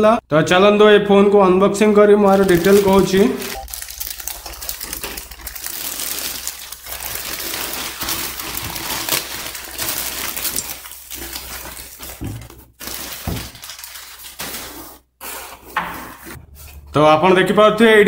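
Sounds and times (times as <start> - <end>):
plastic bag crinkling: 2.2 - 16.8
scissors cutting plastic: 2.4 - 16.3.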